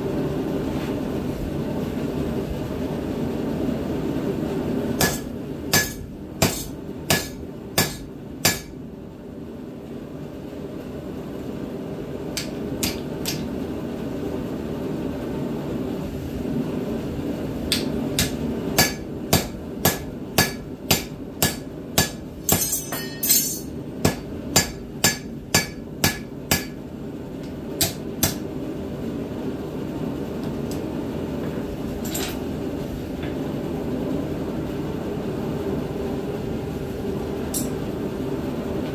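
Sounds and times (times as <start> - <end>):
hammer striking hot steel on anvil: 5.0 - 8.8, 12.3 - 13.5, 17.7 - 26.8, 27.8 - 28.5, 37.5 - 37.8.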